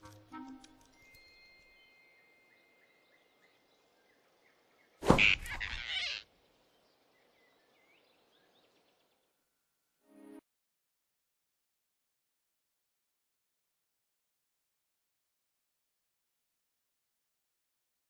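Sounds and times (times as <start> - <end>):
faint birdsong: 0.7 - 9.6
sudden loud grab: 5.0 - 5.7.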